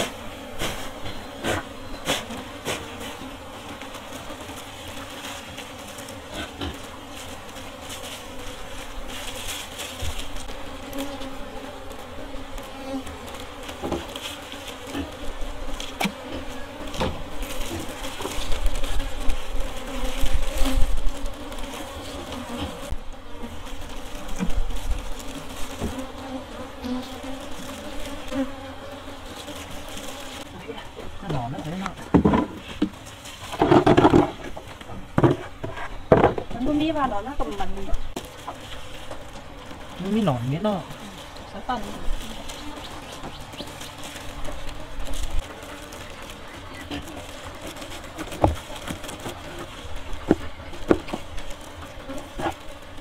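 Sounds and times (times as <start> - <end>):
bees buzzing: 0.0 - 53.0.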